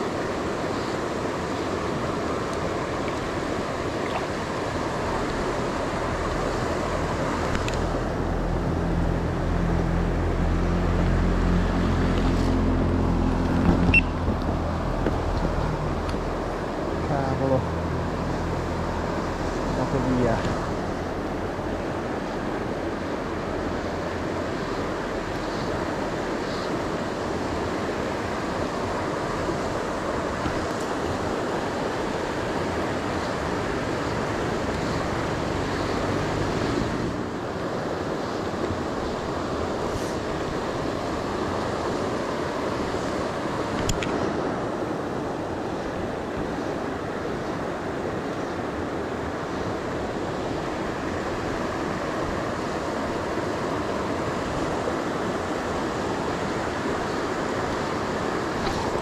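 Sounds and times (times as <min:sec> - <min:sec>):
river water rushing: 0:00.0 - 0:59.0
click: 0:43.8 - 0:44.2.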